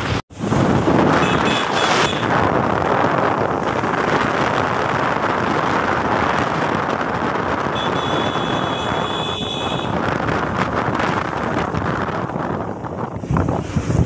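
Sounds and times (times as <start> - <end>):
wind buffeting microphone: 0.3 - 14.0.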